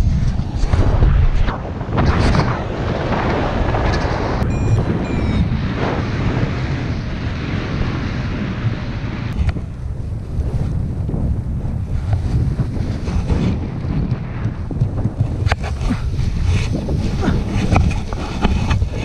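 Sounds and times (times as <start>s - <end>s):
wind rush on microphone: 0.0s - 19.0s.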